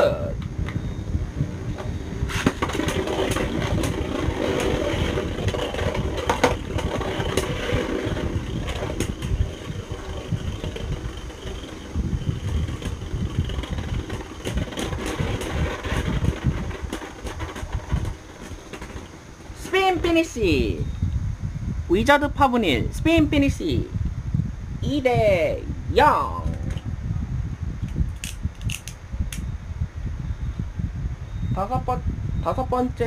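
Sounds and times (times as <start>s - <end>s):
spinning tops whirring: 2.3s - 20.4s.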